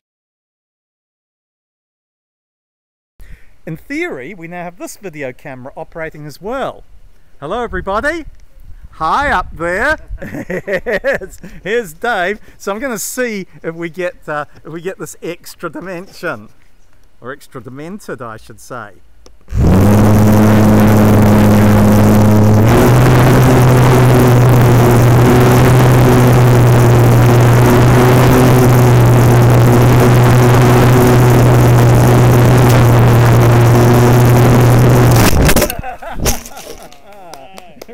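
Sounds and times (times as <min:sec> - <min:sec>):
motor spinning propeller buzz: 0:19.5 - 0:36.9.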